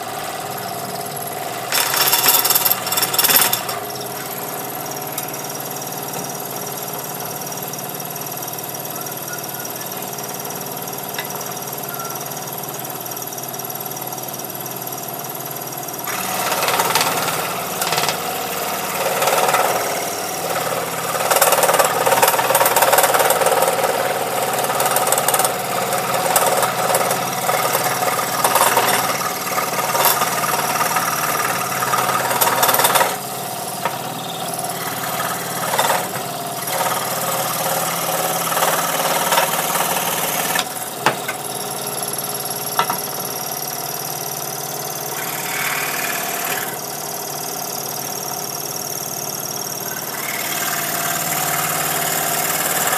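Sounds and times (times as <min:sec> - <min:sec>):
scroll saw cutting wood: 0:00.6 - 0:06.4, 0:16.0 - 0:40.8, 0:44.9 - 0:47.0, 0:49.8 - 0:52.9
scroll saw humming: 0:45.1 - 0:46.8, 0:49.8 - 0:52.9.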